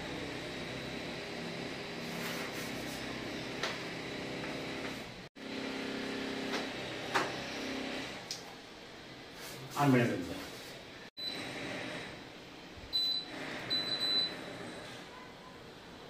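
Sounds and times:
electric motor hum: 0.0s - 8.3s.

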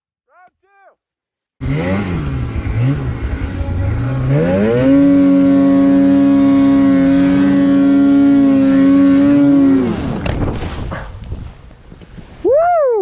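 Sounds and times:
snowmobile engine revving: 1.6s - 10.4s.

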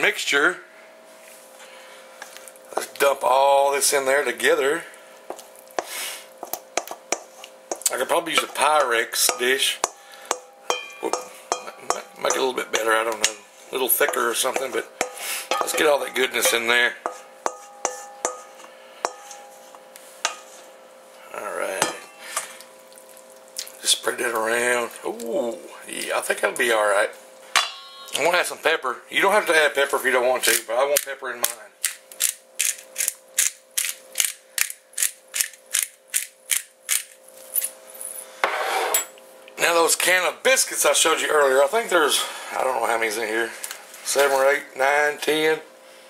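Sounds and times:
wooden spoon knocking metal bowl: 6.4s - 13.4s, 14.0s - 19.6s, 21.8s - 22.1s, 27.6s - 28.3s
pepper grinder clicking: 30.5s - 37.2s.

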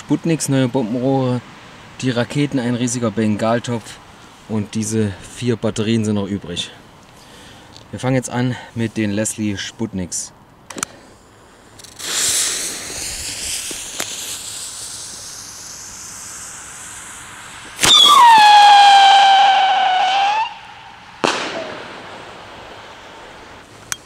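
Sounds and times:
firework tube firing crack: 10.7s - 24.0s
fuse hissing and sputtering: 10.9s - 19.1s
firework whistle: 11.8s - 23.4s
firework bang: 11.8s - 23.7s.

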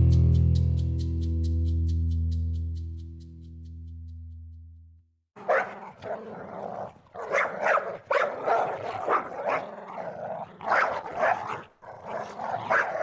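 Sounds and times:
dog barking: 5.4s - 13.0s.

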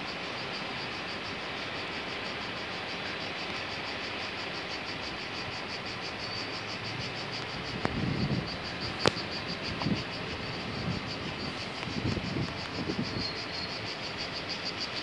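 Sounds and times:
cicadas singing: 0.0s - 15.0s
constant hiss: 0.0s - 15.0s.

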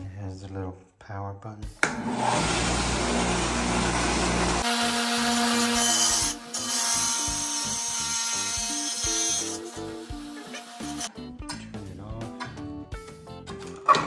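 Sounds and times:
wet tile saw cutting brick: 2.0s - 11.1s.

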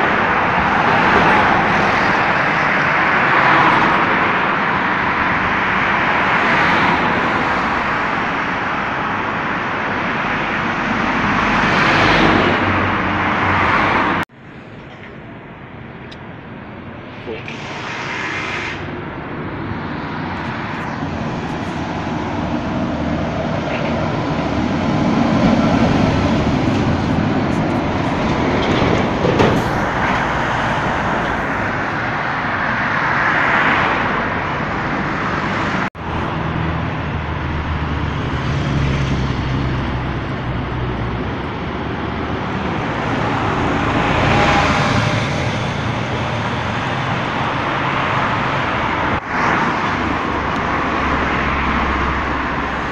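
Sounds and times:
road traffic passing: 0.0s - 52.9s
lorry passing: 5.7s - 52.9s.

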